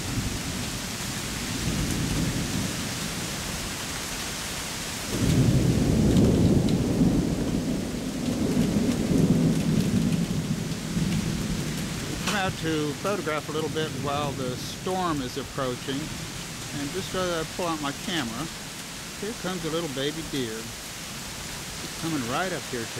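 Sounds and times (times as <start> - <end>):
thunder rumbling: 5.1 - 22.9
steady hiss: 11.0 - 22.9.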